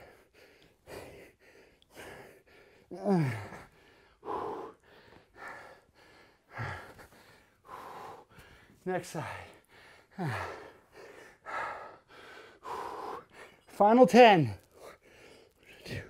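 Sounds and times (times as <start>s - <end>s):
man breathing hard: 0.0s - 13.8s, 14.6s - 16.0s
man groaning: 2.9s - 3.6s.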